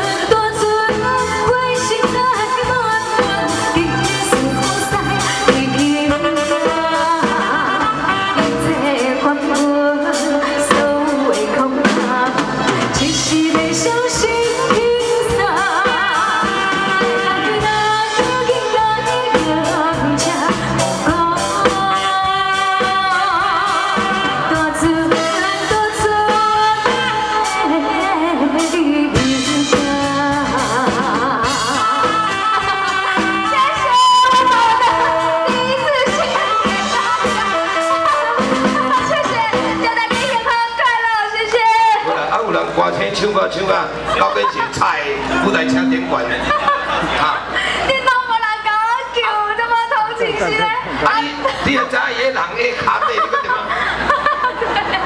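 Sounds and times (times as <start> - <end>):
woman singing with vibrato: 0.0 - 42.0
amplified music with drums: 0.0 - 55.0.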